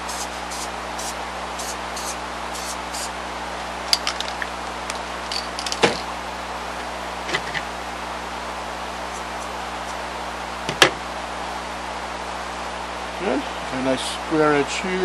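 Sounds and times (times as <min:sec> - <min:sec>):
steady hiss: 0:00.0 - 0:03.2.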